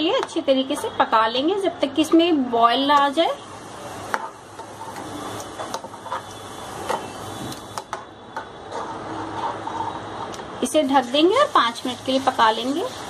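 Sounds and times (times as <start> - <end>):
spoon scraping a pan: 4.1 - 7.8, 8.4 - 10.4.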